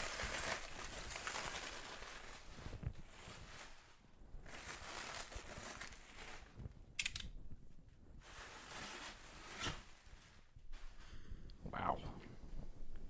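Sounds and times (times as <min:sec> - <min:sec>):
sharp plastic crackle: 0:00.0 - 0:03.8, 0:04.4 - 0:07.4
plastic wrapping crinkling: 0:00.0 - 0:06.6.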